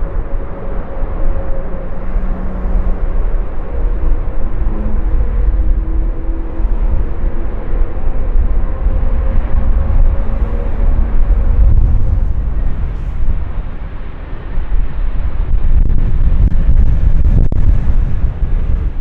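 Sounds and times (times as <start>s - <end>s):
faint engine tones: 0.0s - 14.5s.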